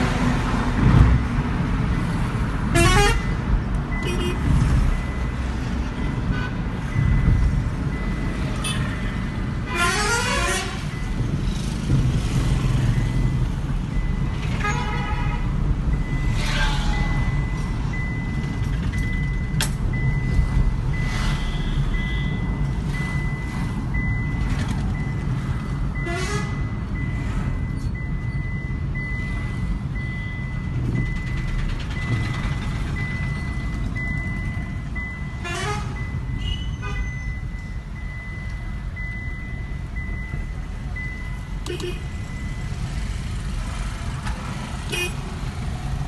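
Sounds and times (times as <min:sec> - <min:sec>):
road and engine rumble: 0:00.0 - 0:46.0
vehicle horns honking: 0:02.7 - 0:03.3, 0:04.0 - 0:04.5, 0:09.7 - 0:10.9, 0:14.6 - 0:15.5, 0:35.4 - 0:37.2, 0:41.6 - 0:42.1, 0:44.9 - 0:45.2
high beep: 0:15.9 - 0:25.4, 0:36.0 - 0:42.9.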